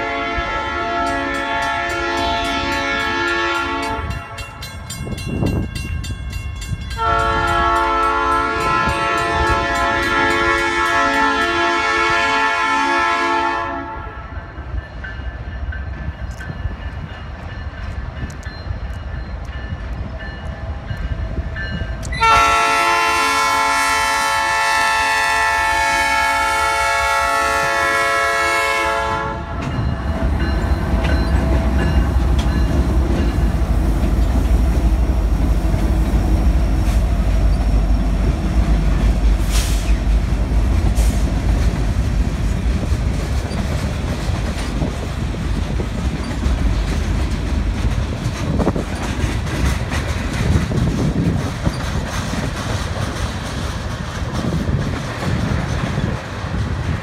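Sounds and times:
train air horn blast: 0.0 - 4.4, 7.0 - 14.4, 22.1 - 29.7, 39.4 - 40.1
diesel locomotives rumbling past: 0.0 - 57.0.

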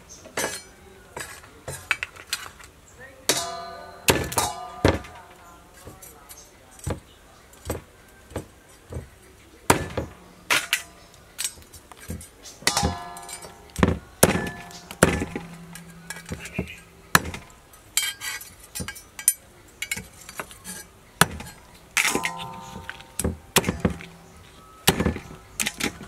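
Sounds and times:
cleaver chopping on wooden board: 9.7 - 10.6.

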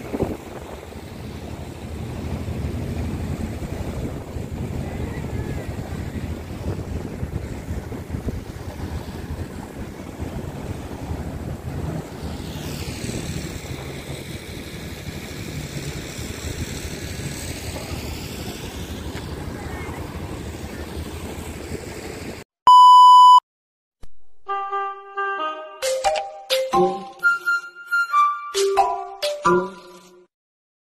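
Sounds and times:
wind buffeting microphone: 0.0 - 21.8
surf washing in: 0.0 - 22.4
test-tone beep: 22.7 - 23.4.

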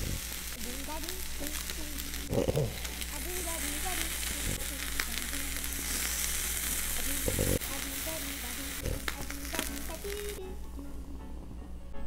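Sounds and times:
fish sizzling on a grill pan: 0.0 - 10.4.

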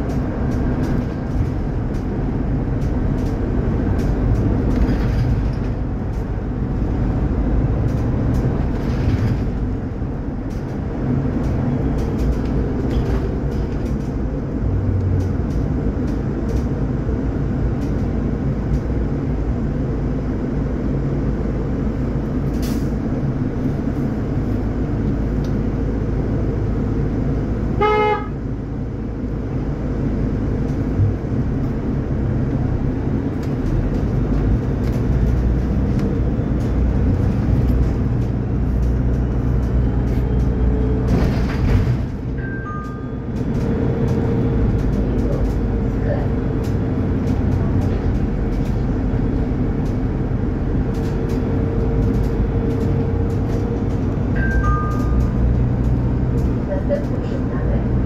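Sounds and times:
bus drivetrain and road rumble: 0.0 - 58.0.

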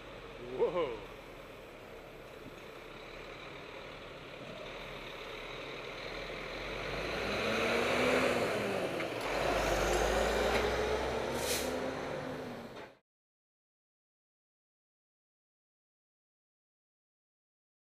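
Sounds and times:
truck diesel engine passing: 0.0 - 13.0
air brake hiss: 11.3 - 11.8.

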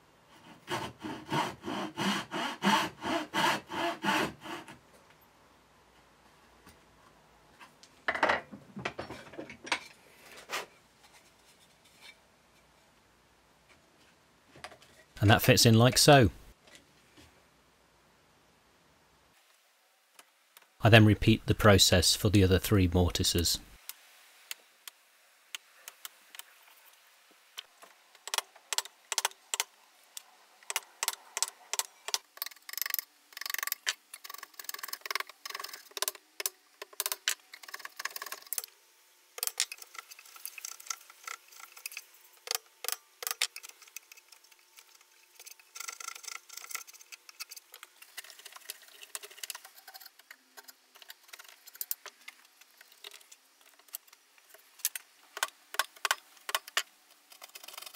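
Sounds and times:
chisel cutting wood: 0.4 - 4.8.

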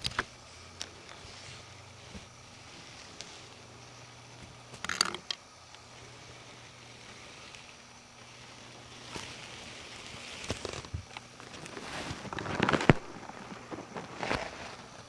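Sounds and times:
scratchy rustling: 5.9 - 15.0.

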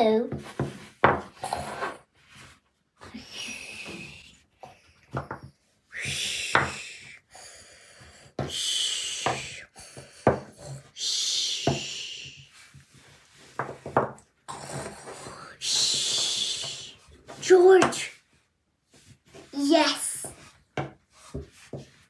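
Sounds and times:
soft breathy hissing: 5.9 - 12.6.

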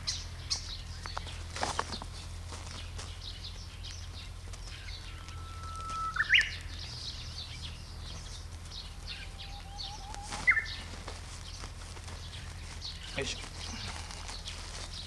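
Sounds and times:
faint high chirping: 3.2 - 10.9
bird singing whistled phrases: 4.7 - 7.6, 9.1 - 10.8.

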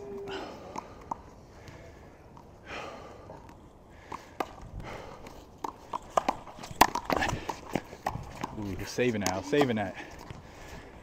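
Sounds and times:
hard breathing: 0.1 - 8.1, 9.8 - 11.0
ball and feet knocking on court: 5.6 - 10.4.

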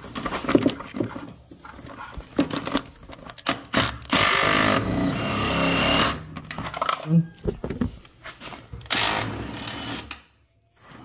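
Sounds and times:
tools clicking and knocking: 2.2 - 4.7.

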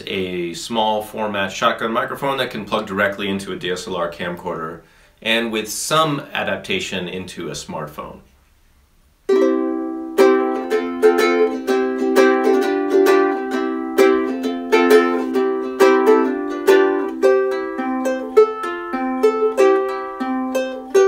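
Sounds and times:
ukulele strumming chords: 9.3 - 21.0.

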